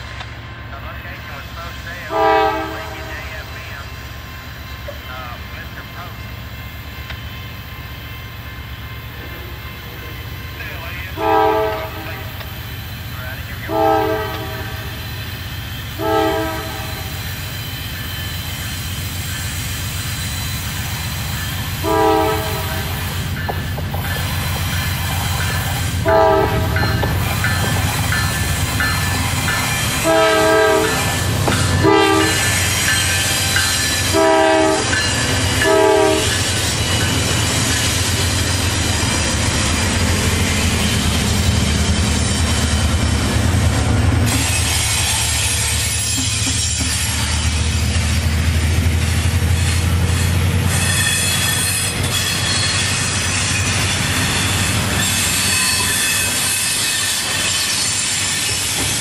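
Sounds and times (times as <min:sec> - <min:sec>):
diesel locomotive engine rumble: 0:00.0 - 0:59.0
train wheel noise: 0:00.0 - 0:59.0
locomotive air horn blasts: 0:02.1 - 0:03.1, 0:11.2 - 0:12.4, 0:13.6 - 0:14.9, 0:16.0 - 0:17.2, 0:21.8 - 0:23.1, 0:26.0 - 0:26.8, 0:30.0 - 0:31.2, 0:31.8 - 0:32.5, 0:34.1 - 0:35.0, 0:35.6 - 0:36.4.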